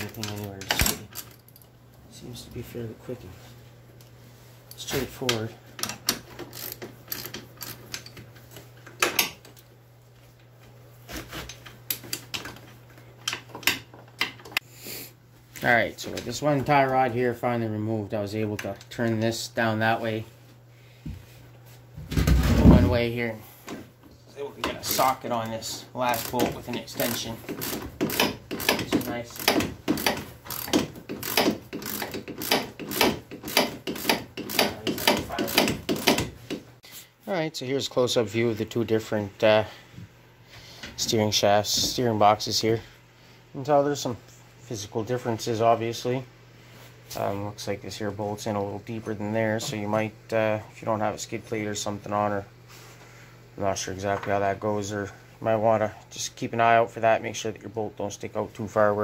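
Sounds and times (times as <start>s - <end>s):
wrench clicking on metal bolts: 5.8s - 8.2s, 26.2s - 36.2s.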